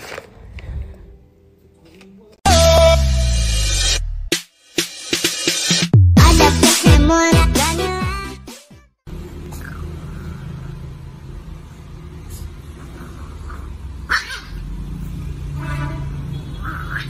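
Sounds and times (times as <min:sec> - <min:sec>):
pop music: 0:02.5 - 0:08.9.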